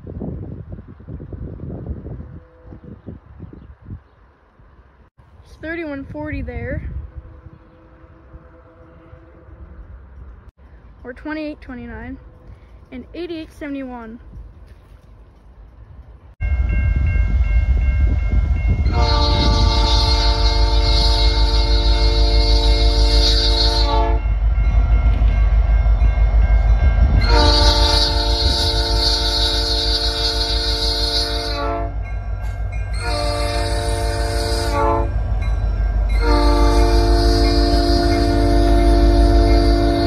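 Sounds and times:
locomotive horn blasts: 7.1 - 9.8, 18.6 - 24.4, 26.3 - 40.0.

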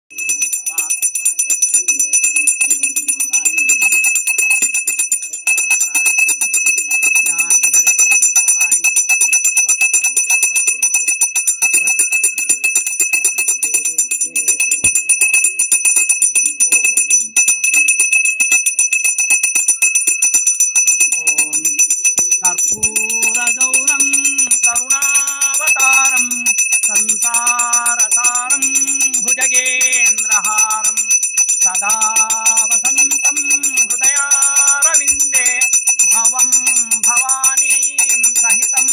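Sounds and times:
hand bell ringing rapidly: 0.1 - 38.9
person singing devotional chant: 22.4 - 38.9.

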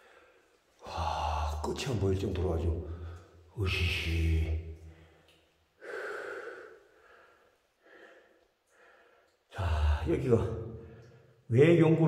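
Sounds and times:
man breathing: 0.0 - 1.4, 4.8 - 10.0
man speaking: 0.8 - 4.8, 9.5 - 10.8, 11.5 - 12.0.

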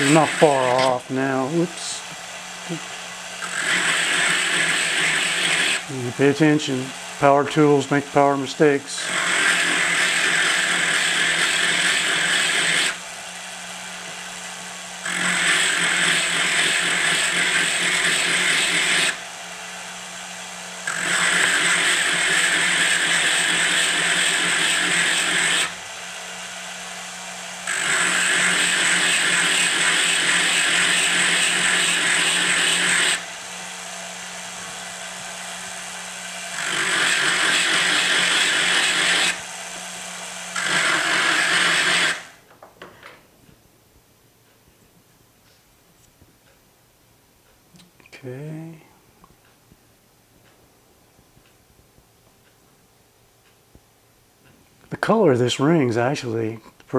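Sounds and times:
rotary tool grinding metal: 0.0 - 13.0, 15.0 - 19.2, 20.8 - 25.8, 27.6 - 33.8, 36.5 - 39.5, 40.4 - 42.4.

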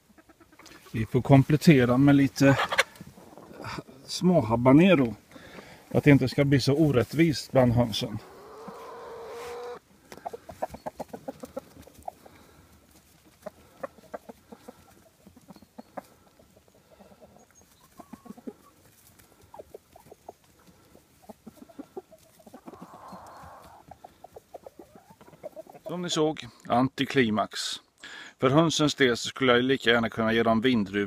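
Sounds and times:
chickens clucking: 0.0 - 26.3.

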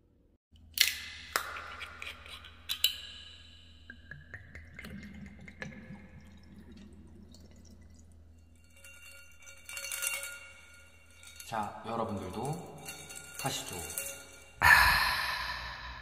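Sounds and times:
liquid pouring over ice: 4.6 - 10.4
ice cubes clinking in glass: 8.4 - 14.6.

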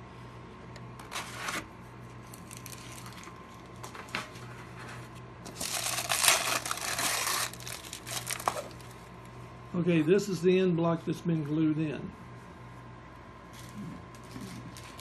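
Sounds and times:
plastic film crinkling: 2.2 - 4.0, 5.5 - 9.0, 14.2 - 15.0.

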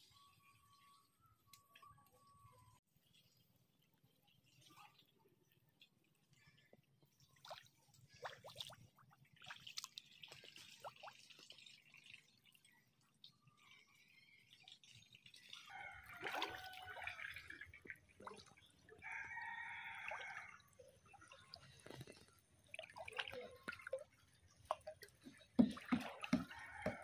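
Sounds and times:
water drips: 3.1 - 27.0
rooster crowing faintly: 15.6 - 17.6.

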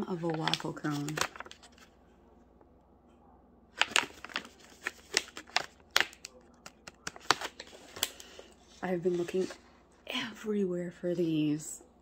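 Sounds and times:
plastic pouch crinkling: 0.1 - 1.8, 3.8 - 8.4.

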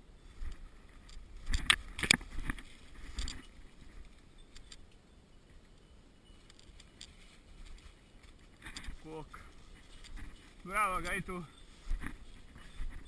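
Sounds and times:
dry leaves and twigs crackling: 0.0 - 13.0.

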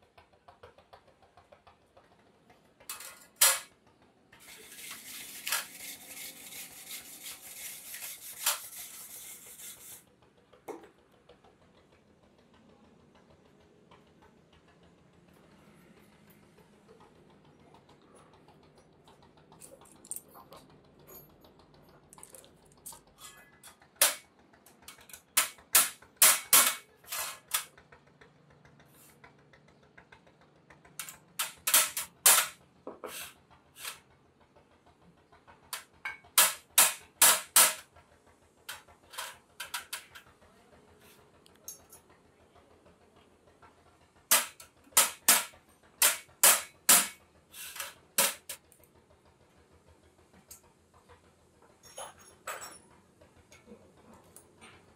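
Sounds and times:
metal taps and clinks: 51.8 - 52.9.

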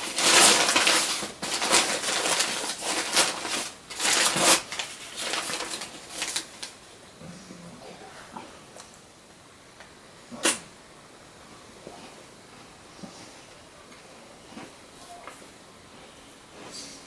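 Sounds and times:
plastic packaging crinkling: 0.0 - 6.8.

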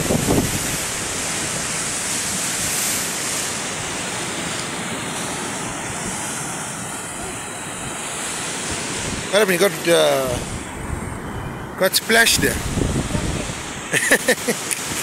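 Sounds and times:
ocean surf breaking over rocks: 0.0 - 15.0.

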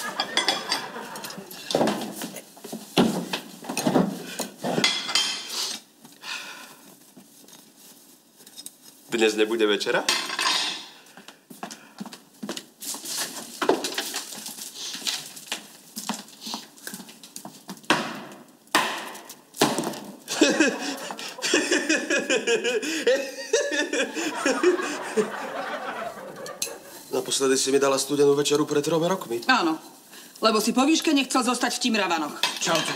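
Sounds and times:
people laughing: 0.0 - 1.6, 20.3 - 27.1
kitchen knocks and clatter: 0.1 - 5.5, 10.1 - 11.0, 13.6 - 14.4, 32.4 - 32.9.

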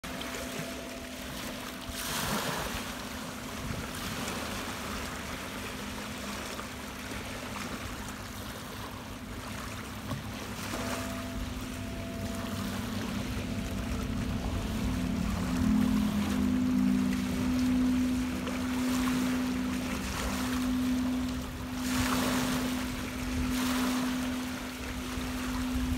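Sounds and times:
crystal singing bowls ringing: 0.0 - 25.9
waves washing on pebble shore: 1.8 - 5.3, 10.6 - 25.9.

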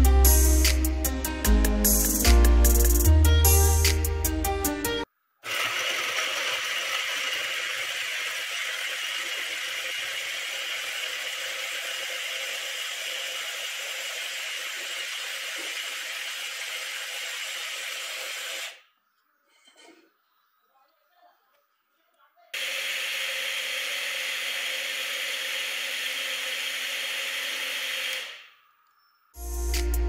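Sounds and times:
mixer grinder grinding food: 5.4 - 18.8, 22.6 - 28.4.

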